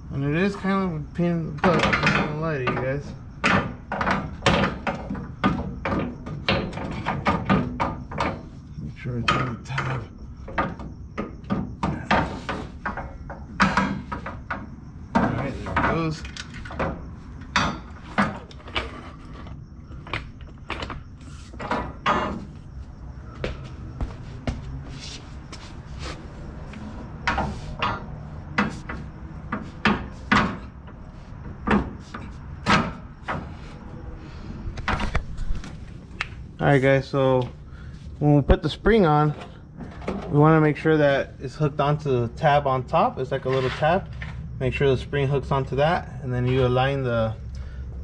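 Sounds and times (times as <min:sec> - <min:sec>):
metal knocks and clunks: 0:01.5 - 0:25.6, 0:26.4 - 0:33.7.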